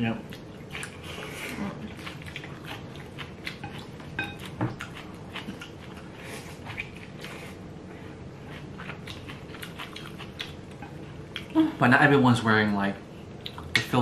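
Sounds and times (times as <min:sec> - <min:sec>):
wet chewing and lip smacks: 0:08.5 - 0:11.6.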